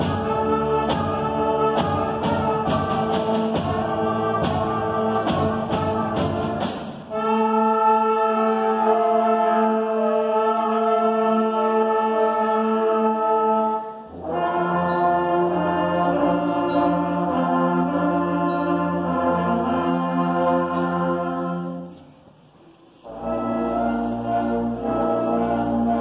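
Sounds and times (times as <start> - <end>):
concert band playing chords: 0.0 - 7.5.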